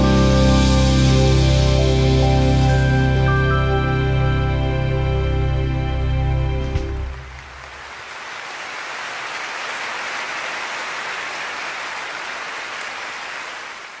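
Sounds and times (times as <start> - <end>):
audience applauding: 7.0 - 14.0.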